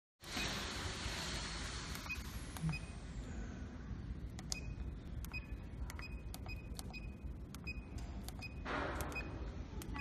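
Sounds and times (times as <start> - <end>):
low steady hum: 0.7 - 10.0
keypad key clicks: 4.4 - 10.0.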